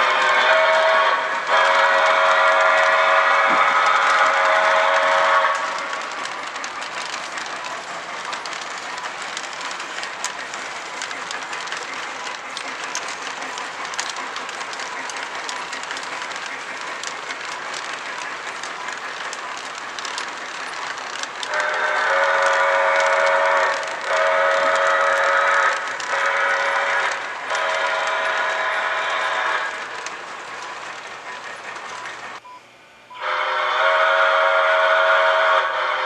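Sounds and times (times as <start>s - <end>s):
steam whistle blasts: 0.0s - 5.8s, 21.5s - 29.8s, 33.1s - 36.0s
model train rolling on track: 0.0s - 32.4s, 33.2s - 36.0s
wheel clicks: 1.2s - 32.4s.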